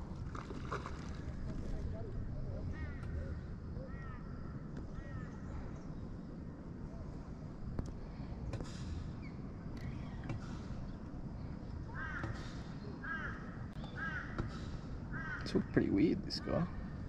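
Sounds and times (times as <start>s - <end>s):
bird calling: 11.9s - 17.0s.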